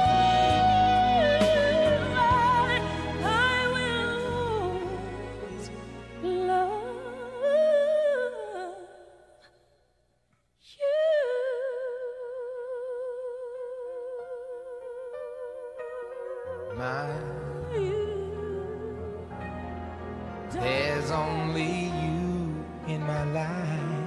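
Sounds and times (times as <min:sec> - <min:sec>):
slow melody with vibrato: 0:00.0 - 0:08.8, 0:11.0 - 0:24.0.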